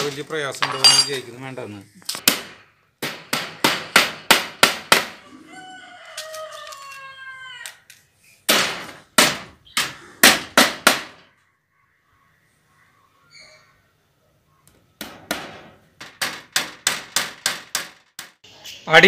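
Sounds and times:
hammer striking nails: 2.2 - 5.2, 8.5 - 11.2, 15.0 - 18.4
rooster crowing: 5.2 - 7.9.

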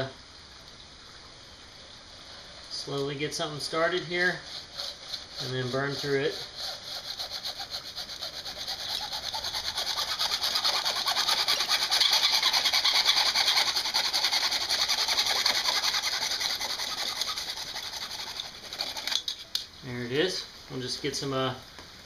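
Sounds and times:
hacksaw cutting plastic: 4.3 - 19.7.

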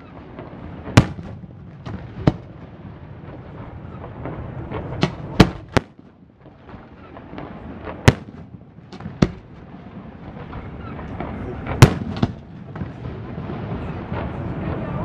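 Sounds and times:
firework shells bursting: 0.0 - 13.2.

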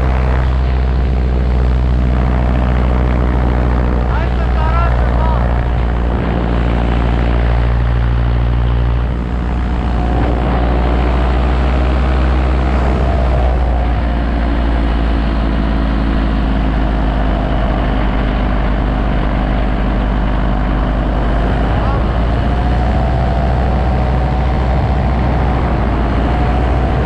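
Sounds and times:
paramotor engine droning: 0.0 - 27.0.

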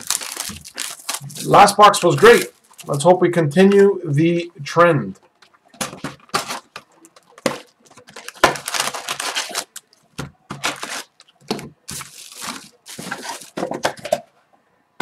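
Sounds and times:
packs rustling and scraping: 0.0 - 3.0, 5.8 - 14.3.

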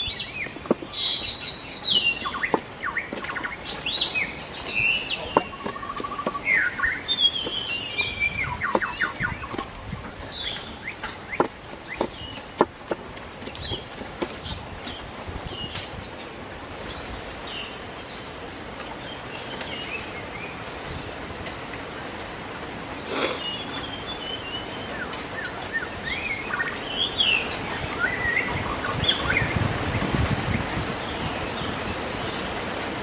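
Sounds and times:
birds chirping and calling: 0.0 - 32.5
outdoor hiss: 14.5 - 27.8.

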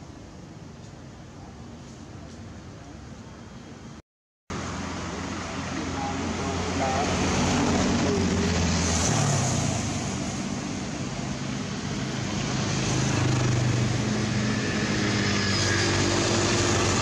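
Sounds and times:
steady rushing noise: 4.5 - 17.0.

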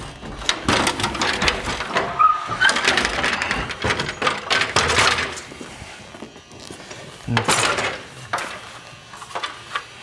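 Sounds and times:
stepladder knocking and clattering: 0.0 - 5.5.

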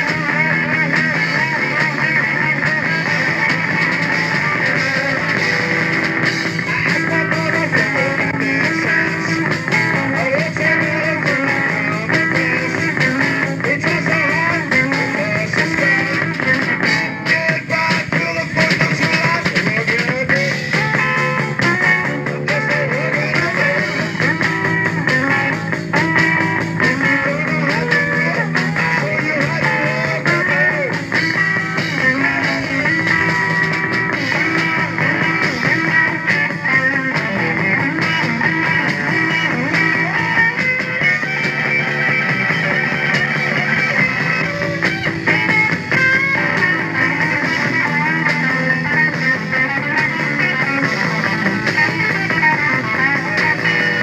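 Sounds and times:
electric guitar: 0.0 - 54.0
rock band playing live: 0.0 - 54.0.

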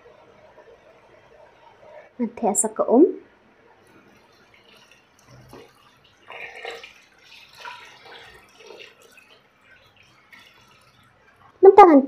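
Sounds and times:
water pouring and splashing: 3.7 - 11.6.

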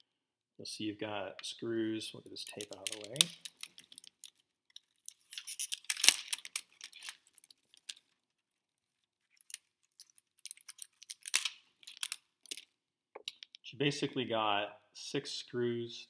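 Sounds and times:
tape peeling off plastic: 2.5 - 8.3, 9.0 - 12.6.

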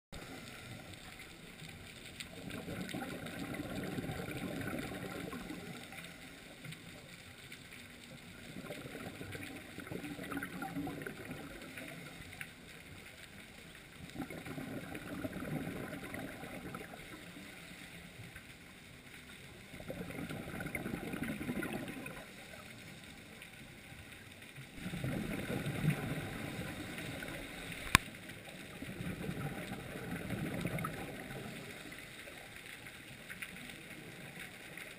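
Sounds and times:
bubbling exhaled air underwater: 2.2 - 6.9, 8.1 - 12.7, 13.9 - 18.3, 19.5 - 23.0, 24.7 - 32.4.

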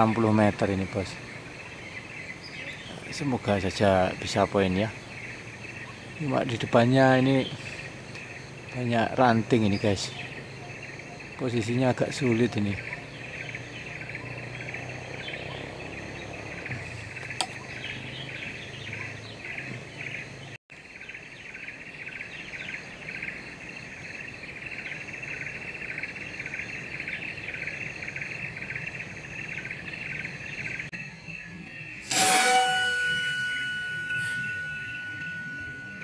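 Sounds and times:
insects buzzing: 0.0 - 36.0
sudden loud sound with ringing: 32.0 - 36.0.

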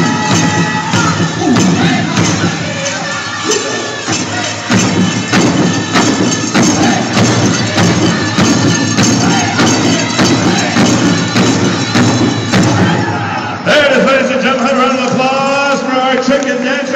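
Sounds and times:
large drum steady beat: 0.0 - 13.2
people singing: 0.0 - 14.1.

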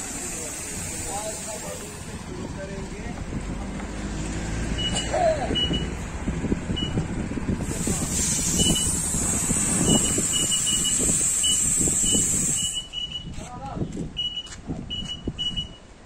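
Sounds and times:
compressed air hissing from hose: 0.0 - 2.2, 7.6 - 12.9
short high electronic beeps: 8.6 - 9.0, 9.8 - 13.4, 14.2 - 15.8.

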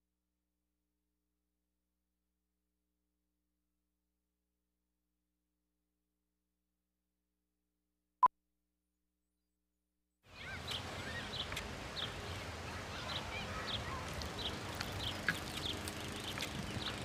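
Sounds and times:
birds chirping: 10.3 - 17.0
steady outdoor hush: 10.3 - 17.0.

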